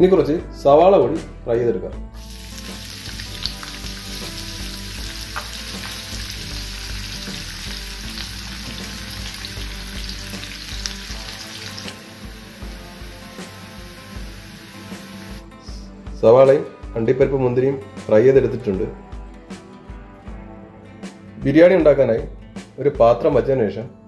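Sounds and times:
onions sizzling in frying pan: 2.2s - 15.4s.

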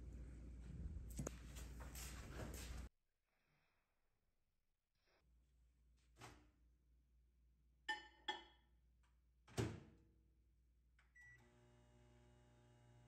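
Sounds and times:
microwave running hum: 11.2s - 13.0s.

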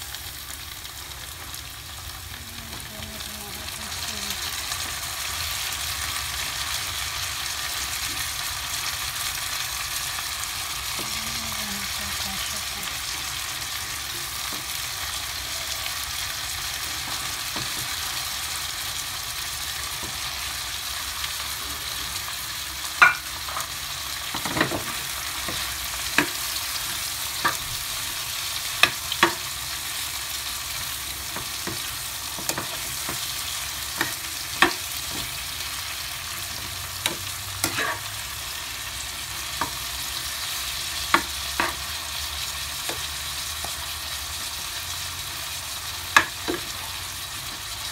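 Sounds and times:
shrimp sizzling in a frying pan: 0.0s - 47.9s
metal utensil scraping a pan: 37.0s - 38.2s.

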